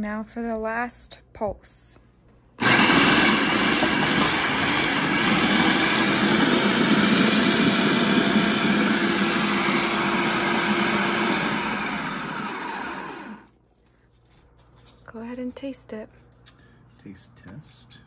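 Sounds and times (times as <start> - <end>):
food processor motor running: 2.6 - 13.5.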